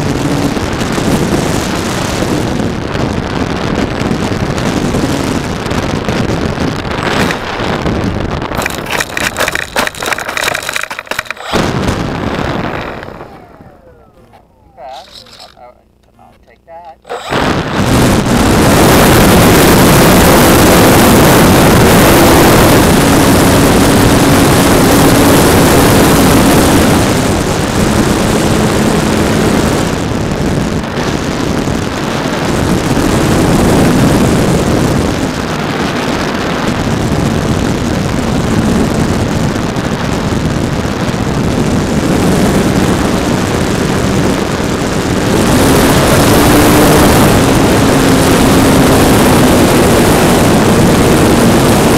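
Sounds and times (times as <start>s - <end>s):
model plane motor and propeller: 7.0s - 7.6s, 8.6s - 29.9s, 41.7s - 51.9s.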